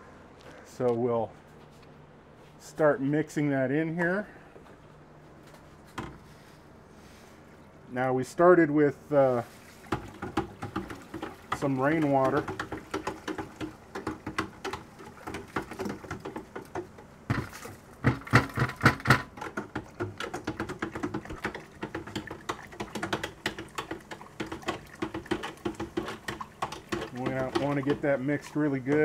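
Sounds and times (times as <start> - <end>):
water swishing: 9.3 - 14.0
stirrer knocking against bucket: 9.9 - 29.0.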